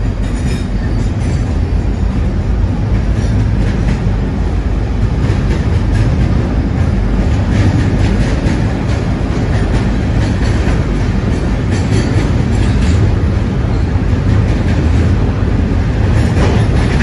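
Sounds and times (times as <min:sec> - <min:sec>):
train wheels rumbling on rail: 0:00.0 - 0:17.0
wheels clicking over rail joints: 0:05.0 - 0:17.0.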